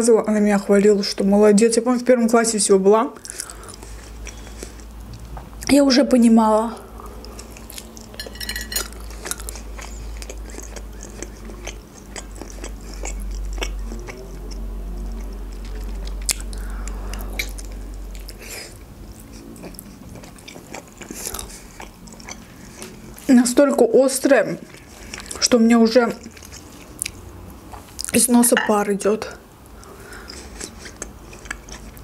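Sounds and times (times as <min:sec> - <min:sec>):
person chewing food: 0:03.2 - 0:05.4, 0:06.9 - 0:23.3, 0:24.6 - 0:25.5, 0:26.1 - 0:28.2, 0:29.6 - 0:32.0.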